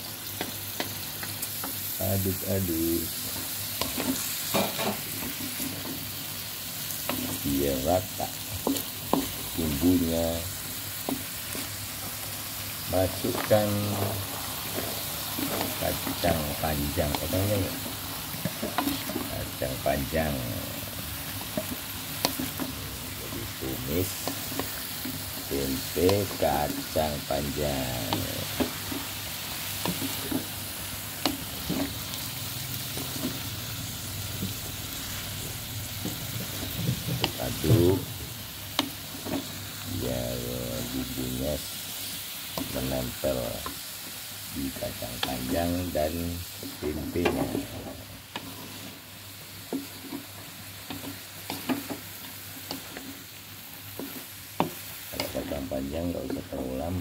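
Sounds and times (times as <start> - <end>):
food sizzling in a wok: 0.0 - 57.0
spatula scraping and tapping pan: 3.3 - 6.1, 8.5 - 9.4, 18.4 - 19.4, 21.3 - 25.3.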